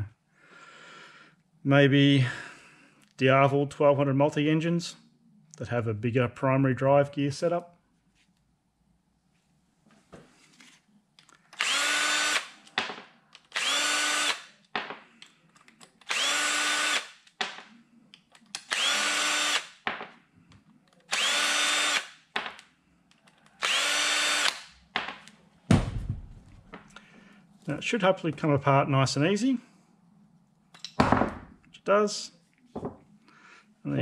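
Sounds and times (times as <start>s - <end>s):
cordless drill whining: 11.5s - 12.6s, 13.5s - 14.5s, 16.1s - 17.1s, 18.7s - 19.7s, 21.1s - 22.1s, 23.6s - 24.7s
screw and handling clicks: 15.2s - 16.2s
thump: 25.7s - 26.4s.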